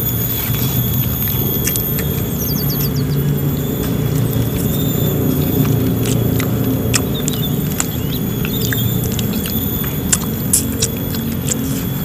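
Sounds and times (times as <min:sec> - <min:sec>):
chewing and smacking: 0:00.0 - 0:12.0
fingers picking at food: 0:01.5 - 0:02.2, 0:03.8 - 0:12.0.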